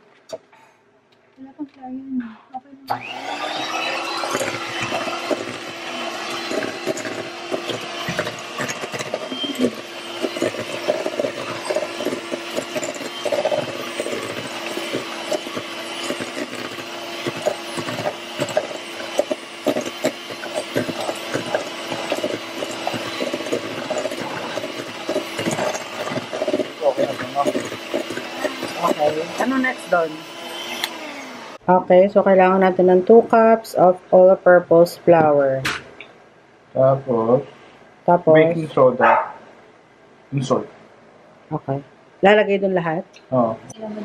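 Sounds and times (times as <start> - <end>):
hand mixer motor humming: 2.9 - 31.6.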